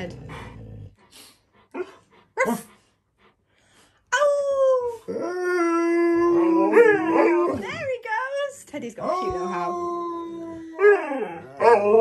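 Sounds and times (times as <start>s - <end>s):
dog howling: 4.4s - 7.8s, 9.3s - 12.0s.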